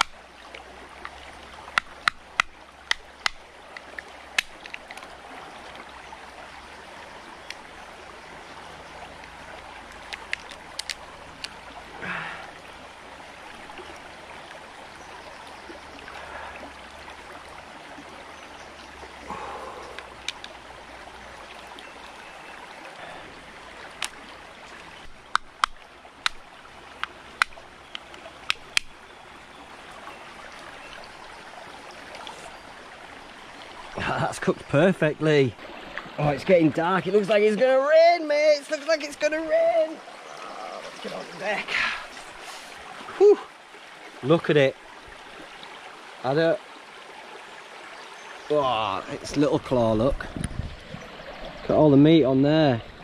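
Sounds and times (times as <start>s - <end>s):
stream running: 0.0s - 53.0s
lobster shells cracking: 10.0s - 11.0s.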